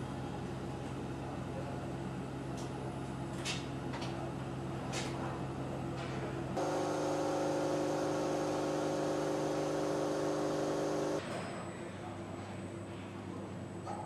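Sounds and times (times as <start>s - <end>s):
factory machinery hum and whir: 0.0s - 14.0s
higher hum of steady tones: 6.6s - 11.2s.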